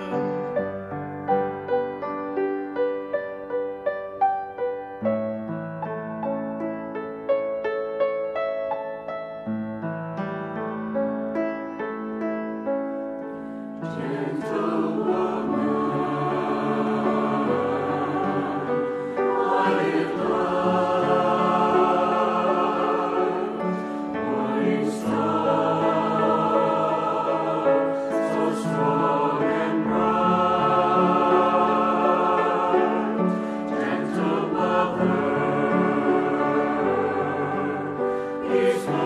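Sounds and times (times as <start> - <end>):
choir singing a hymn: 0.0 - 1.9, 13.8 - 39.0.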